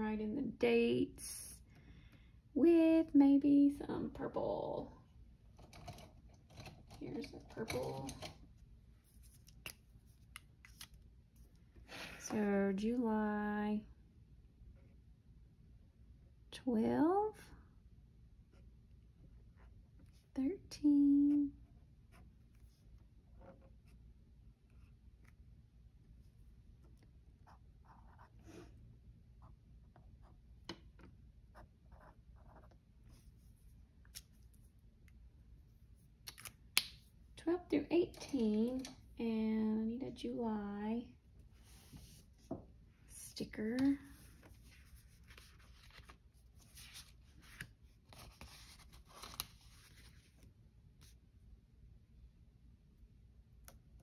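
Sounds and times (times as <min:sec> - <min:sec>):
pen scratching on paper: 0:27.4 - 0:28.6, 0:31.5 - 0:32.8
rustling of paper sticker sheets: 0:44.0 - 0:50.4.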